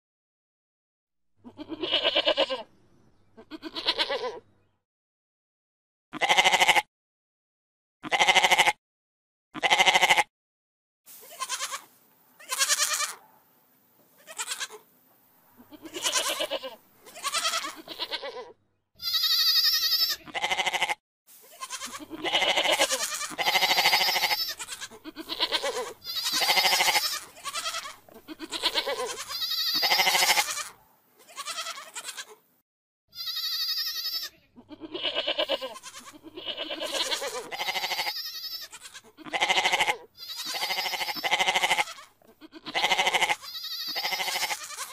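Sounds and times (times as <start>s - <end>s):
goats bleating: 1.4s - 2.7s, 3.4s - 4.4s, 6.2s - 6.9s, 8.0s - 8.8s, 9.6s - 10.3s, 11.2s - 13.2s, 14.2s - 14.8s, 15.6s - 32.4s, 33.1s - 44.9s.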